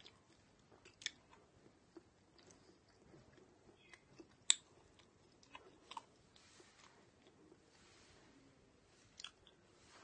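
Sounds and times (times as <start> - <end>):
person chewing with mouth clicks: 0.0 - 6.2, 9.2 - 9.6.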